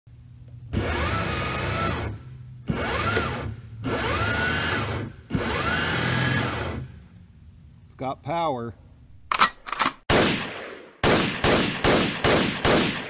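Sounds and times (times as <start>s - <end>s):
electric motor whine: 0.6s - 6.9s.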